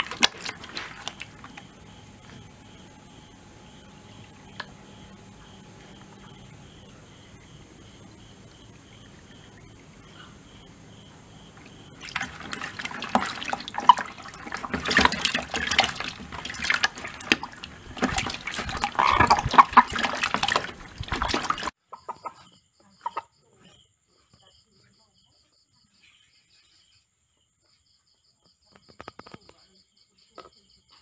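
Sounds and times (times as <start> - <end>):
water splashing in a plastic bucket: 0.0 - 6.9, 7.9 - 21.8.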